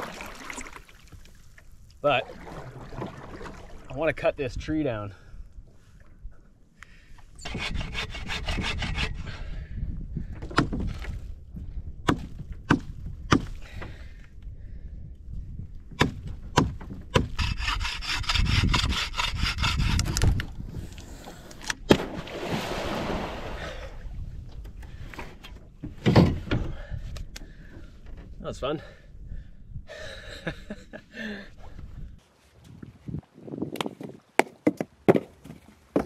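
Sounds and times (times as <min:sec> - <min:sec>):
hand saw cutting wood: 0:07.4 - 0:09.3, 0:17.1 - 0:20.4.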